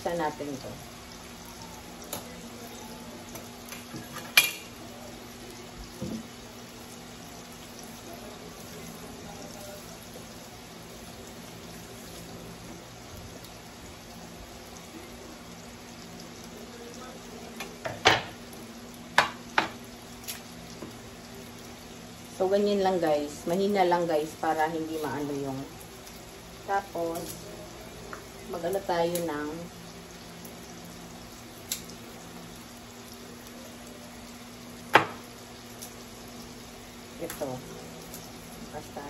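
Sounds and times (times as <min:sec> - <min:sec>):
utensils knocking on countertop: 0:17.8 - 0:18.4, 0:19.2 - 0:19.8, 0:34.9 - 0:35.2.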